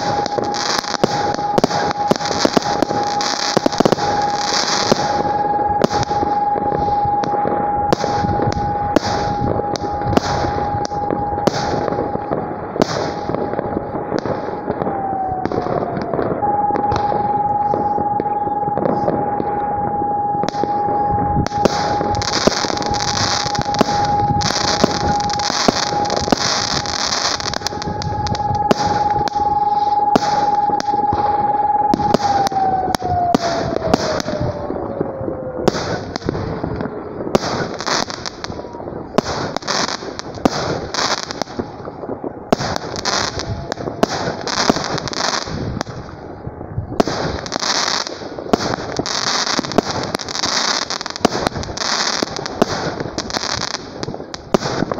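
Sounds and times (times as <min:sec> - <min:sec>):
fireworks bangs: 0:00.0 - 0:54.9
fireworks hissing and crackle: 0:00.0 - 0:54.9
steady tone gliding down: 0:14.6 - 0:36.9.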